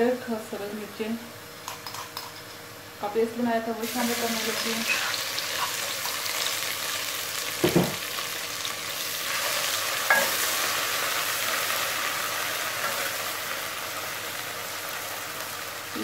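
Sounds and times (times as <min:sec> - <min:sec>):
paste sizzling in hot oil: 0:03.8 - 0:16.0.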